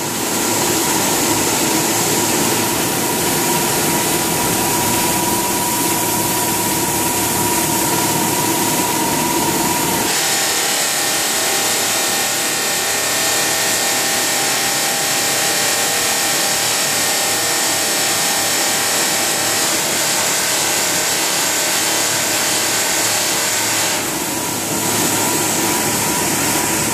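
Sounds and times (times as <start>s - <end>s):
polishing machine whining: 0.0s - 26.9s.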